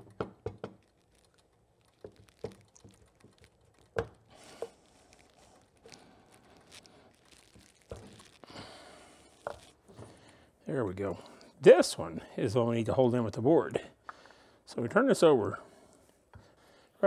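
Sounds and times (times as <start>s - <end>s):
cloth rag rustling: 3.2s - 10.4s.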